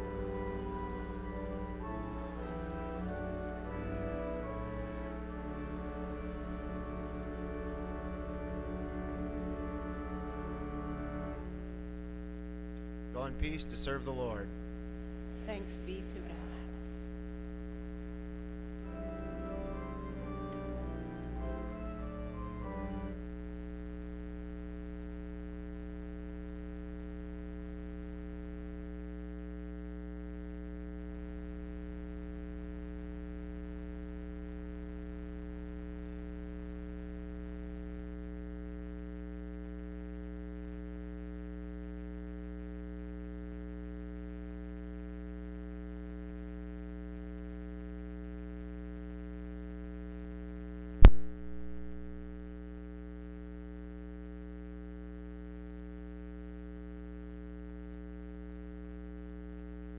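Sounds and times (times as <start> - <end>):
electrical hum: 0.0 - 29.5, 50.8 - 52.9
sharp click: 51.0 - 51.7.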